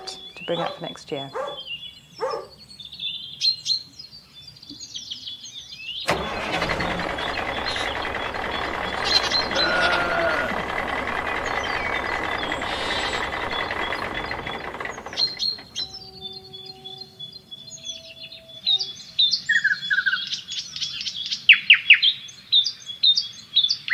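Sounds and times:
birds chirping: 0.0s - 3.6s, 5.9s - 17.4s
vehicle engine noise: 6.1s - 16.2s.

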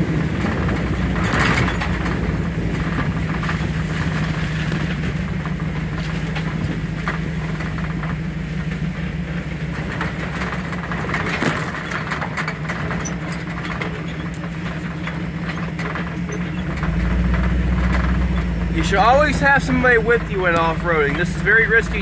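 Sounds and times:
vehicle engine running: 0.0s - 22.0s
light clicks and knocks: 0.3s - 22.0s.

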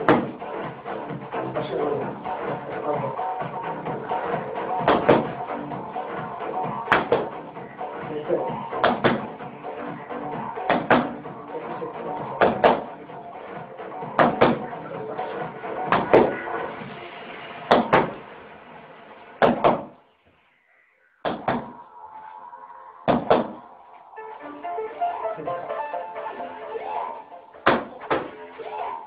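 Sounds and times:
background music: 0.0s - 20.1s, 21.2s - 29.0s
boxing gloves thumping hands: 14.2s - 14.7s.

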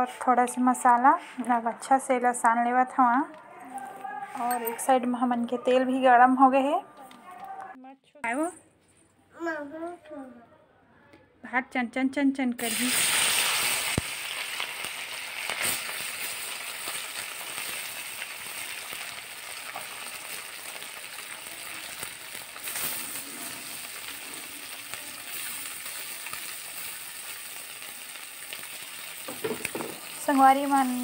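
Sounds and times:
fish frying in hot oil: 12.6s - 31.0s.

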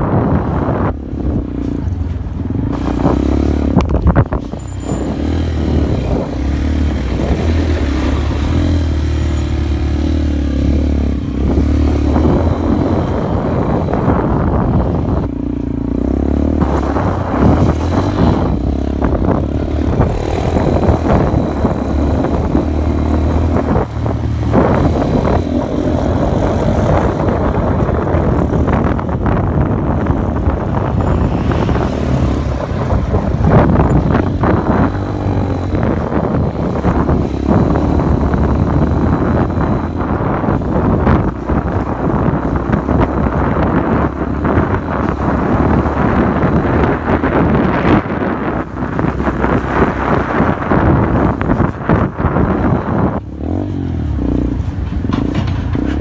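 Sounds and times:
motorcycle engine running: 0.0s - 56.0s
knocks and rattles: 54.6s - 56.0s.

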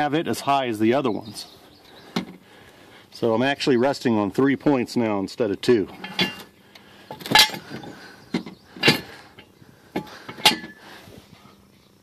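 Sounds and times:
metal jack stand clicks and clanks: 5.9s - 6.5s, 7.1s - 10.8s.

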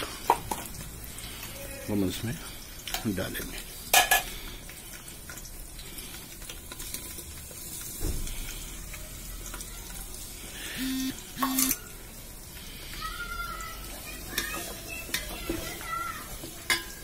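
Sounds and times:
oil sizzling in a pot: 0.0s - 17.0s
short flat tones: 10.8s - 11.8s.

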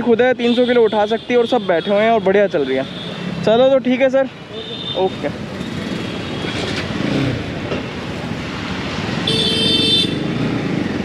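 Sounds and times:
motorcycle road noise: 0.0s - 11.0s
vehicle horn honking: 9.3s - 10.2s.

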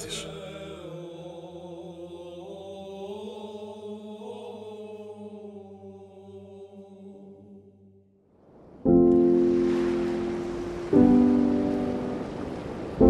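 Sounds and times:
slow vocal chant: 0.0s - 7.9s.

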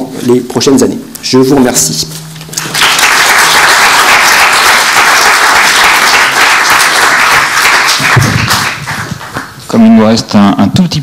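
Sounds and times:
audience applauding: 2.6s - 9.6s.

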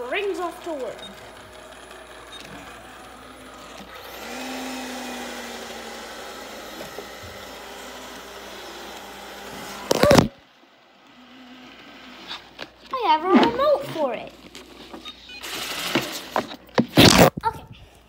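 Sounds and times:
robot vacuum whirring: 0.0s - 10.4s, 14.5s - 17.3s.

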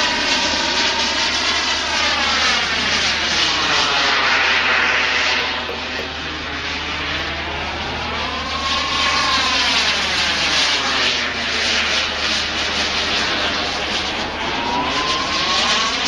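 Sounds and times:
model jet engine flying past: 0.0s - 16.0s.

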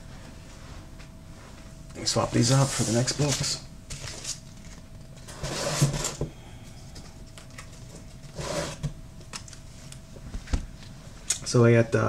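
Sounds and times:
comic books rustling and sliding: 2.0s - 6.2s, 8.3s - 8.9s.

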